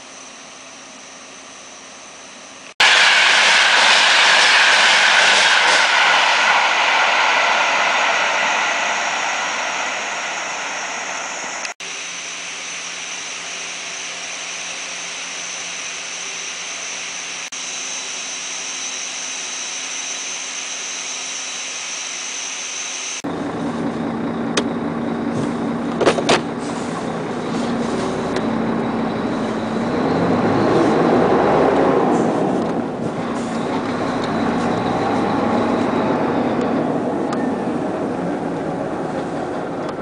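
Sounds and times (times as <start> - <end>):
faint high whine: 0.0 - 25.3, 27.1 - 31.8
pump rushing hiss: 2.8 - 15.8
truck engine running: 23.2 - 40.0.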